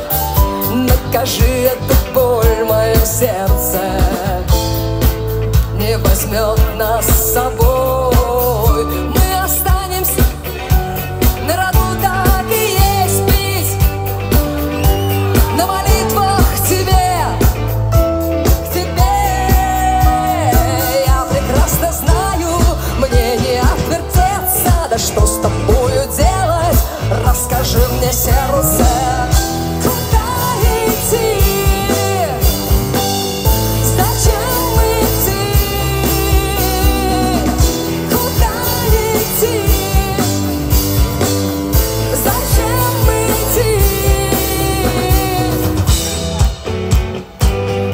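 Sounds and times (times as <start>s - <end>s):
woman singing: 0.0s - 46.1s
drum kit beat: 0.0s - 47.9s
electric guitar and keyboards: 0.0s - 47.9s.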